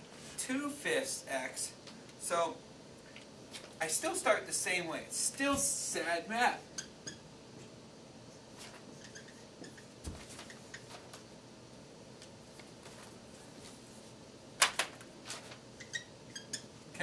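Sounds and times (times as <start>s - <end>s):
marker scratching on whiteboard: 8.6s - 11.0s.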